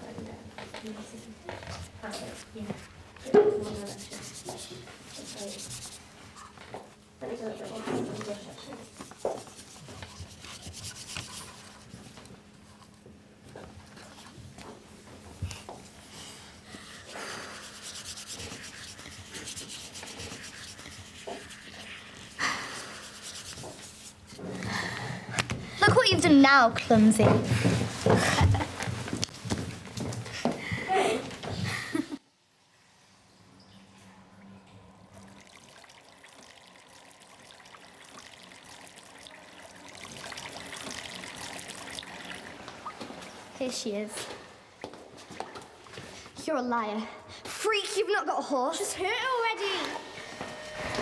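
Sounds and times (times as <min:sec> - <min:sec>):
loud brush scrape: 0:03.6 - 0:06.1, 0:08.8 - 0:12.0, 0:17.1 - 0:24.3
paintbrush scrubbing on paper: 0:03.6 - 0:06.5, 0:07.3 - 0:12.2, 0:17.0 - 0:24.4
tap water running into basin: 0:35.1 - 0:43.5.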